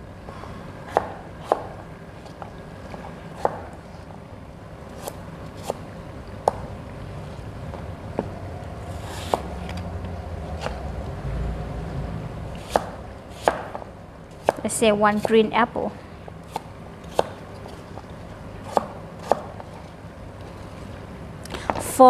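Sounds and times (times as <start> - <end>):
low rumble: 7.2 - 13.2.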